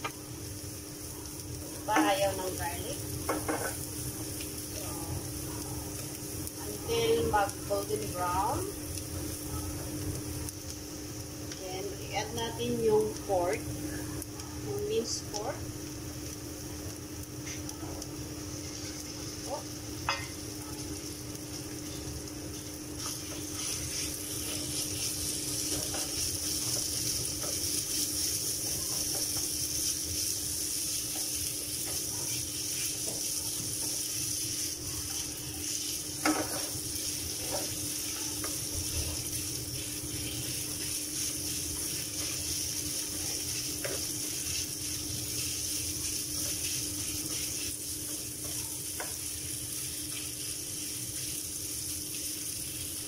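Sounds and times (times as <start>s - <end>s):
meat sizzling in a frying pan: 0.0s - 53.0s.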